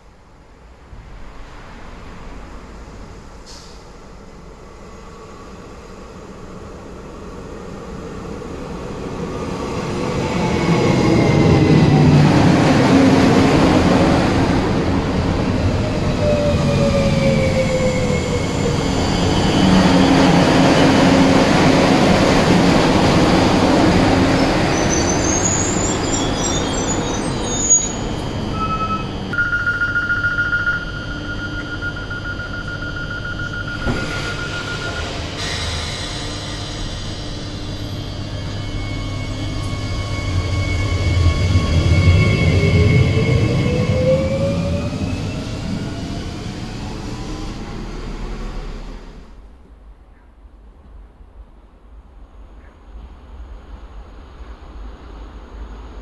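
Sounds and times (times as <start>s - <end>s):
train wheels rumbling: 0.6s - 50.0s
train brakes whining and squeaking: 15.4s - 49.3s
electronic door signal tone: 28.5s - 35.2s.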